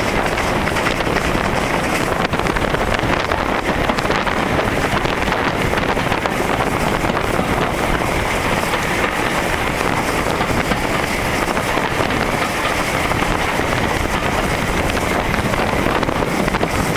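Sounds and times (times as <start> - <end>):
steam locomotive running: 0.0 - 16.9
wind on microphone: 0.0 - 16.9.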